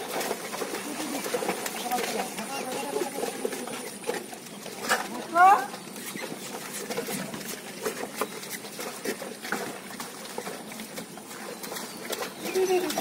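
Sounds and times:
hooves splashing through mud: 0.0s - 13.0s.

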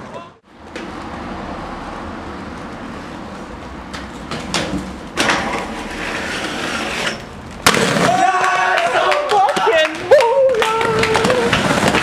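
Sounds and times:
skates rolling on pavement: 0.1s - 12.0s
skates clacking: 3.9s - 12.0s.

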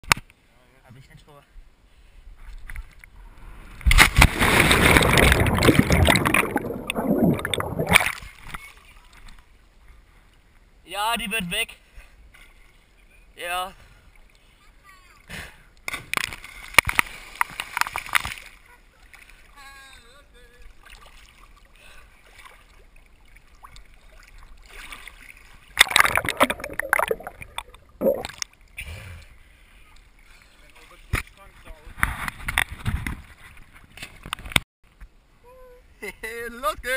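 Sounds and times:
loud splash: 3.9s - 8.2s, 25.8s - 28.4s
underwater churning and bubbling: 4.3s - 8.1s, 25.7s - 28.4s
faint water lapping: 16.4s - 31.4s.

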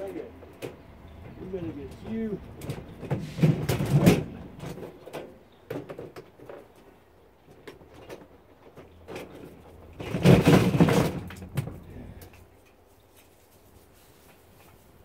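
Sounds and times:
dishwasher parts clattering: 2.0s - 6.6s, 7.8s - 11.9s.

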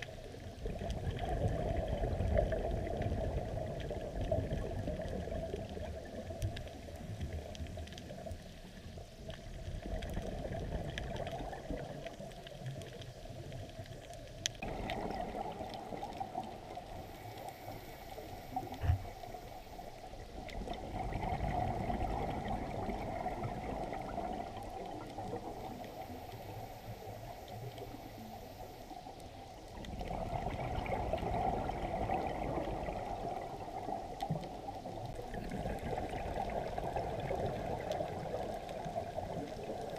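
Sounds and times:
underwater exhaled air bubbling: 0.0s - 39.9s
faint clicks: 3.6s - 20.8s, 31.6s - 39.9s.

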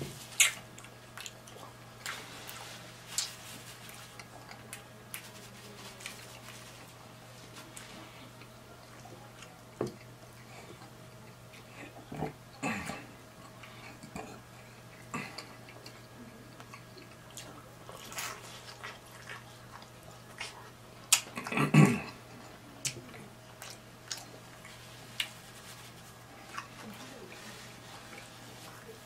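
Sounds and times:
wet chewing and lip smacking: 0.3s - 2.2s.

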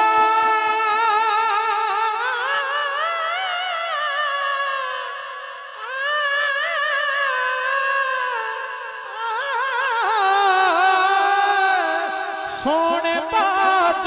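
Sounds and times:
person singing with vibrato: 0.0s - 14.0s.

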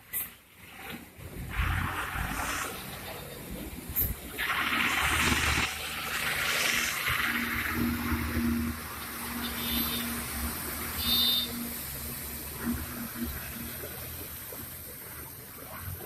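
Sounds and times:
tyre hiss on wet road: 0.0s - 16.0s
truck engine hum: 1.1s - 16.0s.

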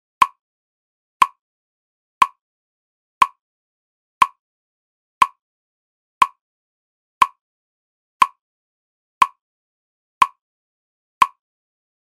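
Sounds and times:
sharp clock-like tick: 0.2s - 0.4s, 1.2s - 1.4s, 2.2s - 2.4s, 3.2s - 3.4s, 4.2s - 4.4s, 5.2s - 5.4s, 6.2s - 6.4s, 7.2s - 7.4s, 8.2s - 8.4s, 9.2s - 9.4s, 10.2s - 10.4s, 11.2s - 11.4s.

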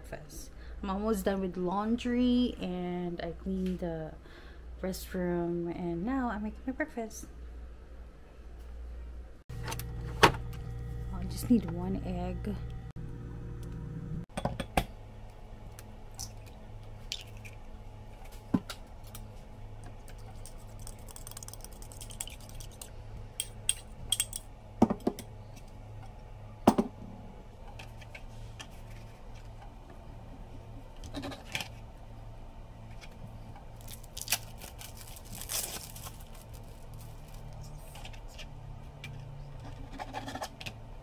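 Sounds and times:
low steady hum: 0.0s - 41.0s.

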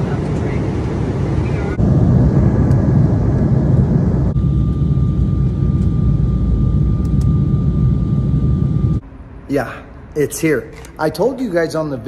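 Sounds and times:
jet airliner cabin rumble: 0.0s - 9.4s
thin steady whine: 0.0s - 12.0s.

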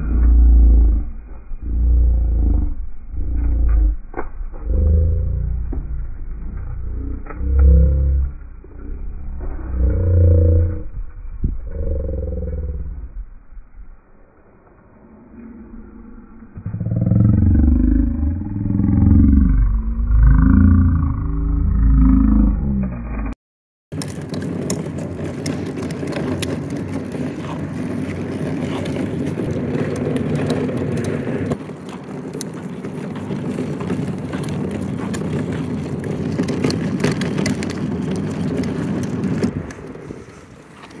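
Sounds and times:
plastic wheels rolling on pavement: 0.0s - 14.0s, 23.9s - 41.0s.

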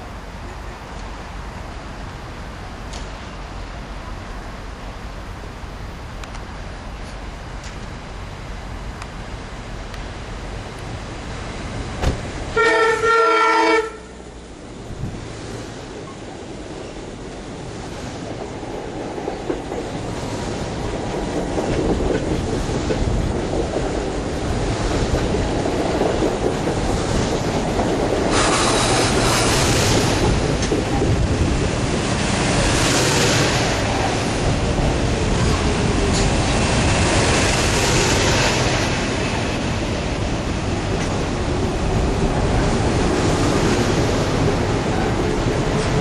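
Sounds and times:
train wheels clattering on rails: 15.0s - 46.0s.

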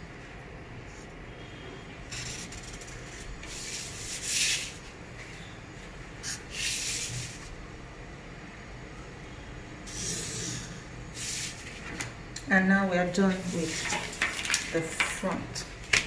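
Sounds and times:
marker scratching on paper: 2.1s - 4.8s.

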